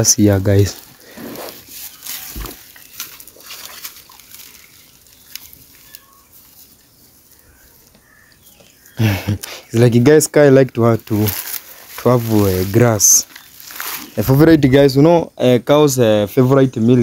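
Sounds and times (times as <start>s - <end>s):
dry grass rustling: 0.0s - 14.8s
cow tearing and chewing grass: 0.2s - 8.3s, 10.8s - 14.4s.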